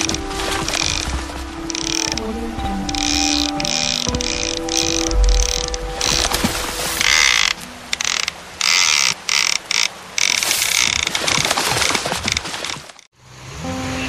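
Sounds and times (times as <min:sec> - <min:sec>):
fishing reel ratchet clicking: 0:00.0 - 0:01.1, 0:01.7 - 0:02.3, 0:02.9 - 0:06.3, 0:07.0 - 0:11.4.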